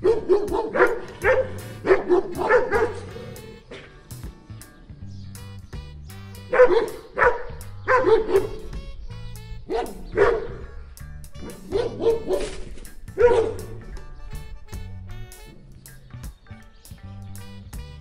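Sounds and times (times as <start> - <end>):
dog barking: 0.0 - 3.9, 6.5 - 8.6, 9.6 - 10.7, 11.4 - 13.9
background music: 0.0 - 18.0.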